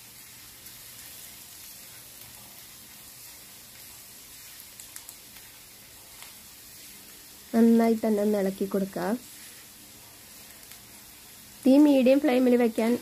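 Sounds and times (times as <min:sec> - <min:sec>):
spatula stirring in pan: 0:00.0 - 0:11.7
food sizzling in oil: 0:00.0 - 0:13.0
spatula clicking against pan: 0:04.7 - 0:05.4.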